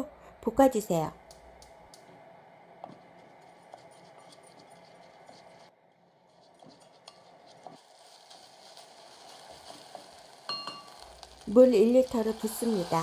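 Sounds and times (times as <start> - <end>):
spatula scraping rice in pot: 3.2 - 10.4.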